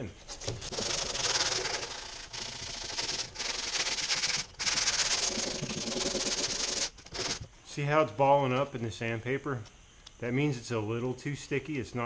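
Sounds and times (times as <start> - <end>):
sandpaper scraping filler: 0.3 - 7.4.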